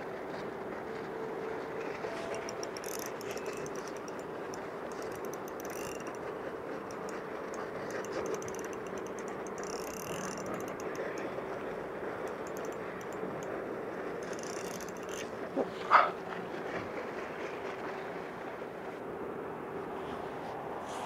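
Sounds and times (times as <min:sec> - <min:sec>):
spinning reel clicking: 0:02.1 - 0:13.6, 0:14.2 - 0:15.4.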